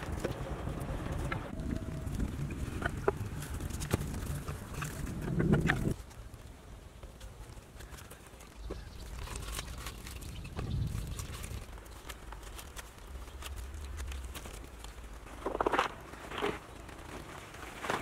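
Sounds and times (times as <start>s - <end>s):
rope rustling and scraping: 6.9s - 18.0s.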